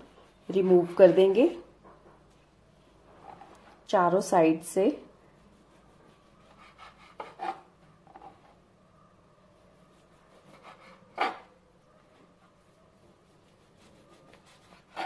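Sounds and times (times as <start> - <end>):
knife scraping through bread: 5.8 - 7.7, 9.9 - 11.5, 13.6 - 15.0.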